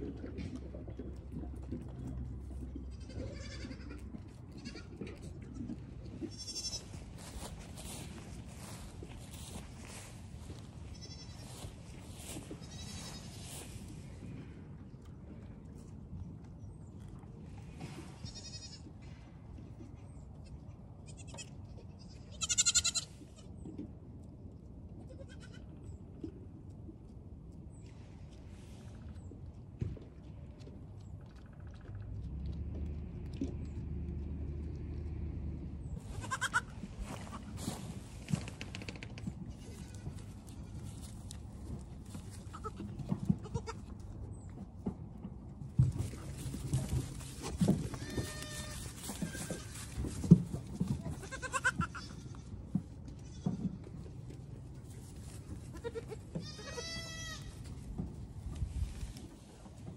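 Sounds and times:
goat kids bleating: 2.8 - 13.6, 18.1 - 18.9, 21.0 - 23.5, 25.1 - 25.8, 36.1 - 37.8, 39.5 - 41.1, 42.4 - 44.0, 46.6 - 50.2, 50.9 - 53.7, 55.5 - 57.7
vehicle engine hum: 30.1 - 39.6, 40.2 - 51.6.

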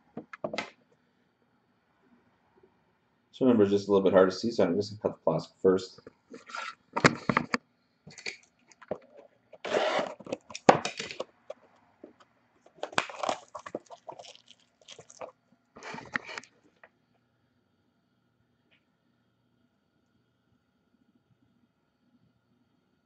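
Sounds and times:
plastic wrap crinkling: 12.7 - 16.6.

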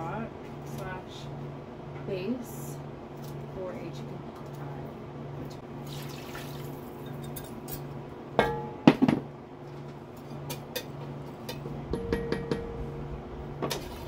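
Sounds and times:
water pouring: 5.8 - 6.9
low pulsing hum: 11.4 - 14.0.

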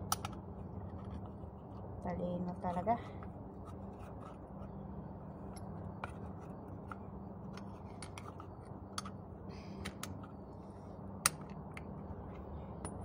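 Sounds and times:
steady low hum: 0.0 - 13.0
small metallic clicks and taps: 0.1 - 0.4.

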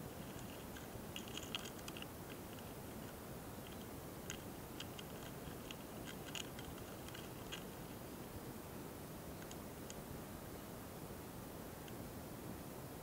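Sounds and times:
beetles ticking and scratching: 0.0 - 8.1, 9.3 - 10.0
steady hiss: 0.0 - 13.0.

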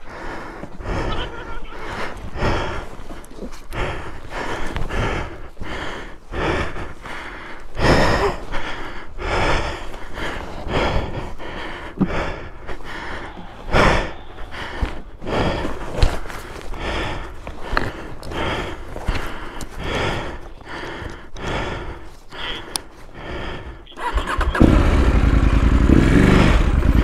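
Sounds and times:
deep gasps: 0.0 - 24.6
person breathing hard: 0.0 - 27.0.

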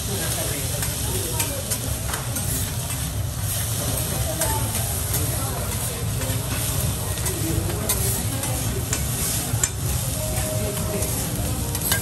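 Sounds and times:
rice sizzling on a griddle: 0.0 - 12.0
metal spatulas scraping: 0.8 - 10.0, 11.0 - 12.0
spatulas clicking on steel plate: 11.7 - 12.0.

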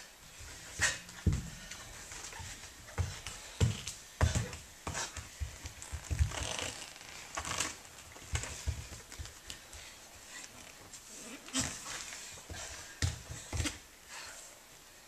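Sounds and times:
bare feet thudding on floor: 0.3 - 9.9, 11.6 - 13.9.

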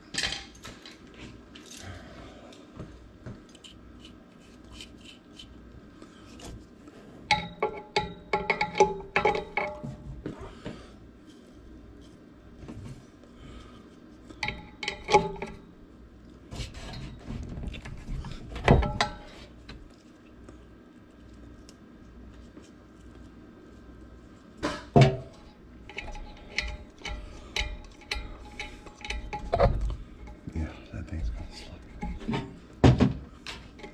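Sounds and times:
metal knocks and clanks: 16.6 - 19.4, 24.6 - 30.4
light metal clicks and rattles: 25.1 - 30.6.

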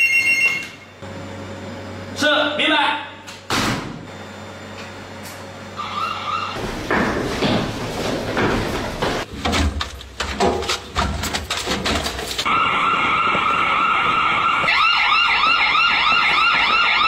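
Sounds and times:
siren wailing: 5.8 - 6.6, 12.5 - 17.0
hurried boot steps: 6.6 - 12.5.

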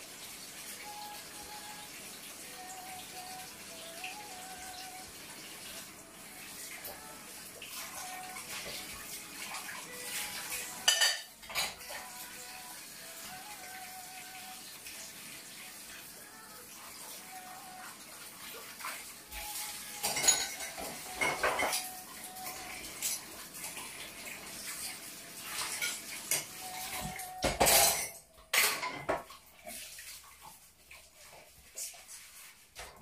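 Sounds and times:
dishes and cutlery clinking: 9.6 - 12.2, 19.4 - 24.0, 24.6 - 29.8.

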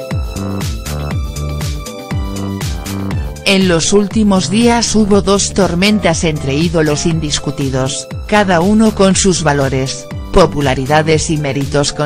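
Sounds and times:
kick drum beat: 0.0 - 3.5
sustained synth chords: 0.4 - 4.4.

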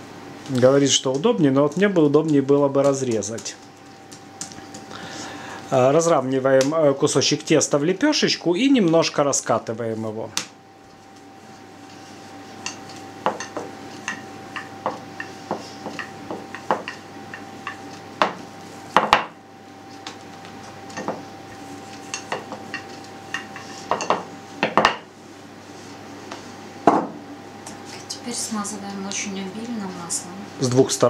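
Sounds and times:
rolling pin knocking on stone board: 13.2 - 17.0, 17.6 - 19.4, 23.4 - 25.1, 26.9 - 27.2.

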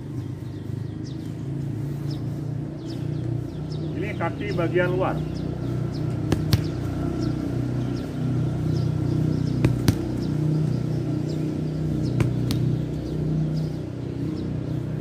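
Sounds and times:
football kicked on grass: 6.3 - 6.8, 9.5 - 10.3, 12.1 - 12.7.

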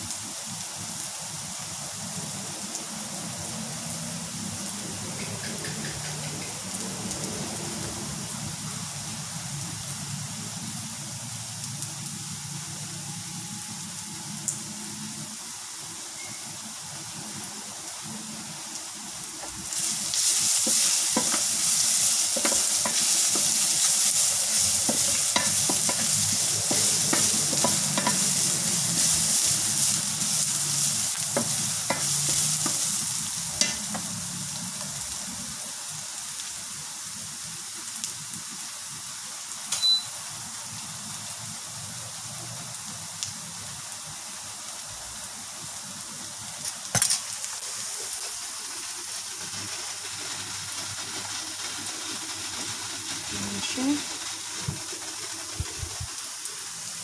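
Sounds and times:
garlic sizzling in hot oil: 0.0 - 57.0
wooden spatula scraping wok: 19.8 - 34.3.

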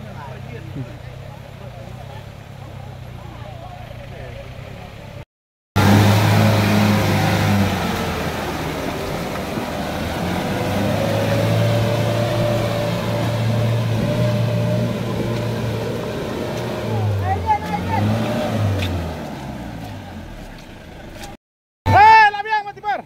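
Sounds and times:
engine running through mud: 5.8 - 21.4.

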